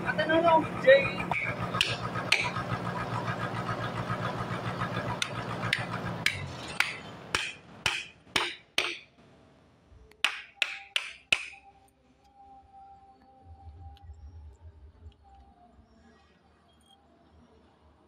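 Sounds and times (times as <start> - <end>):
hammer striking steel chisel: 1.3 - 2.5, 5.2 - 9.1, 10.2 - 11.7.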